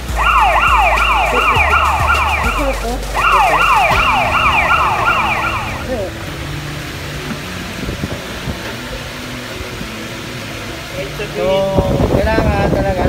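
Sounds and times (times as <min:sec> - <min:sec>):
siren-like alarm whooping: 0:00.0 - 0:06.2.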